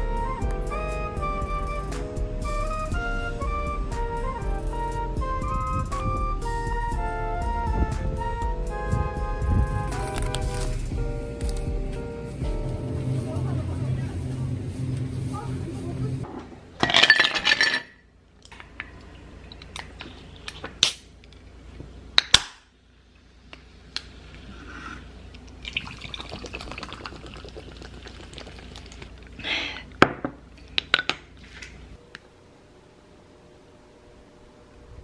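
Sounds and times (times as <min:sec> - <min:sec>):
ice clinking against glass: 0:16.8 - 0:18.0
juice pouring and splashing: 0:23.8 - 0:29.4.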